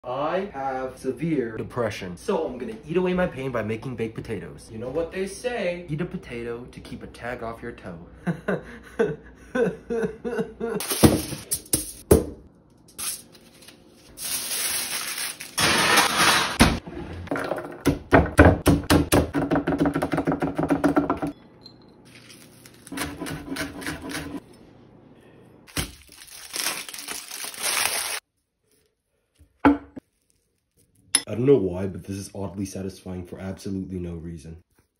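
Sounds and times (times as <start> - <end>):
aluminium foil crinkling: 12.9 - 16.3, 22.1 - 23.0, 25.7 - 31.1.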